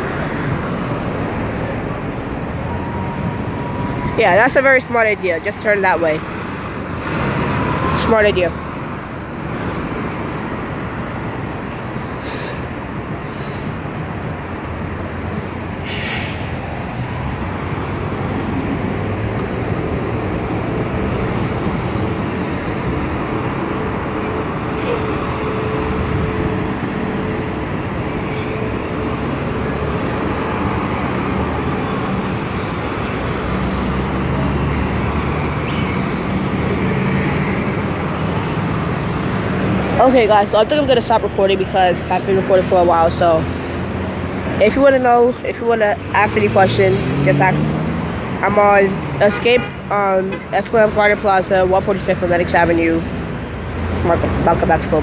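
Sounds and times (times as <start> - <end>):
bus engines running: 0.0 - 55.0
air brake hisses: 12.2 - 12.7, 15.8 - 16.7.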